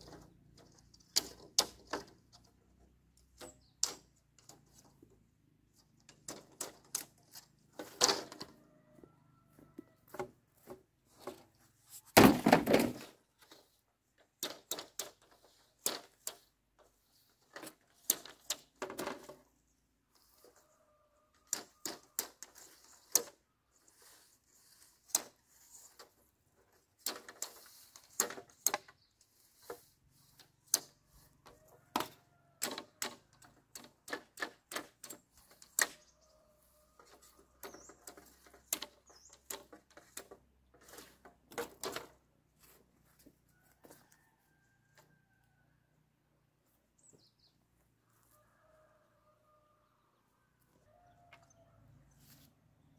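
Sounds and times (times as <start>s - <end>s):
bamboo poles knocking together: 0.0s - 5.0s, 5.9s - 8.6s, 9.5s - 19.6s, 21.4s - 23.4s, 24.8s - 36.1s, 37.0s - 44.0s.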